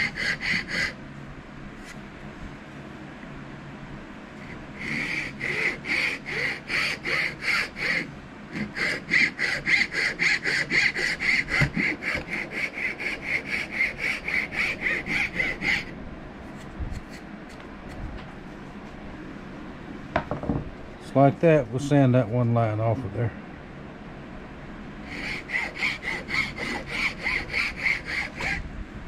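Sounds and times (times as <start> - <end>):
file rasping on knife handle: 0.0 - 1.0, 4.4 - 15.9, 16.5 - 18.0, 25.1 - 28.6.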